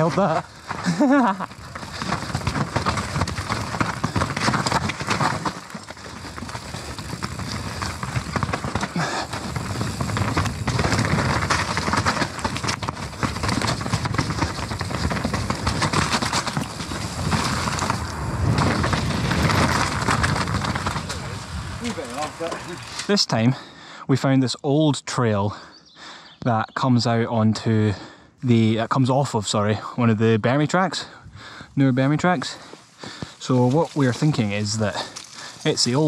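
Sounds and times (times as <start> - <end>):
bike chain and frame rattling: 0.0 - 23.2, 32.3 - 36.0
bike tyres clattering over rocks: 0.0 - 23.2, 31.9 - 36.0.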